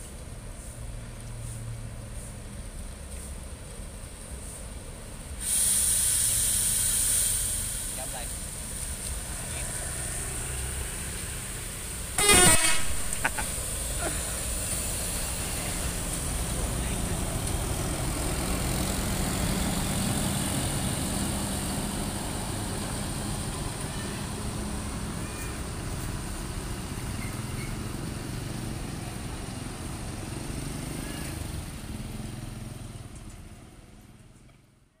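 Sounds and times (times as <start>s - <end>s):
bus diesel engine rumbling: 0.0s - 35.0s
motorcycles passing: 8.9s - 25.2s.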